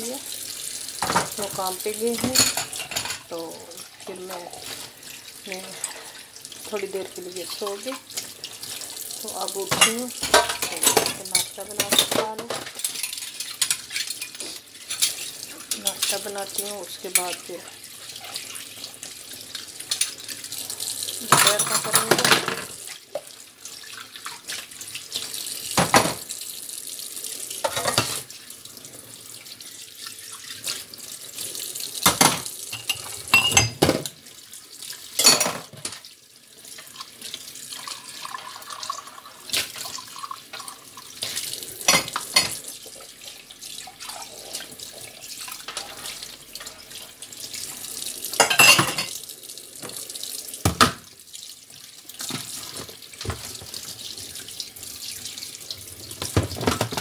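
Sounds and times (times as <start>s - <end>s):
tap water running into sink: 0.0s - 57.0s
dishes clinking: 2.2s - 3.3s, 9.7s - 15.3s, 21.3s - 22.7s, 32.1s - 34.1s, 35.2s - 36.0s, 41.8s - 42.6s, 48.4s - 49.2s.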